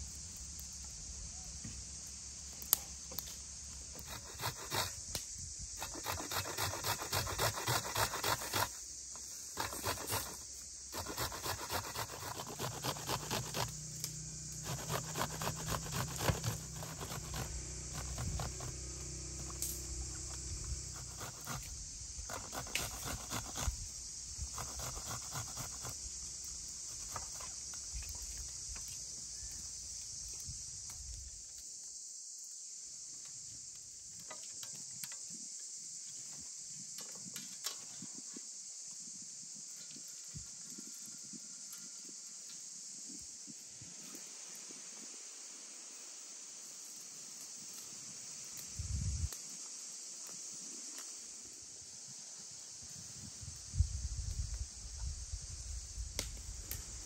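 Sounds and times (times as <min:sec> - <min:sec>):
onion rasping on metal grater: 0:11.0 - 0:13.7.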